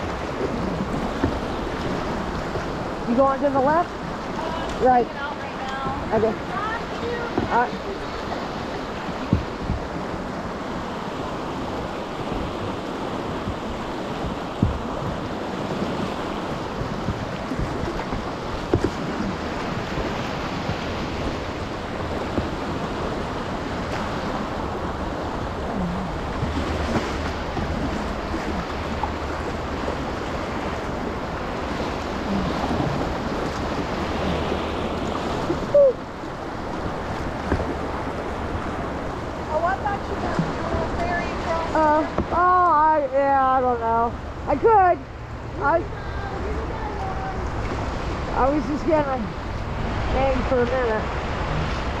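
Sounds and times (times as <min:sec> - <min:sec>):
river rapids rushing: 0:00.0 - 0:52.0.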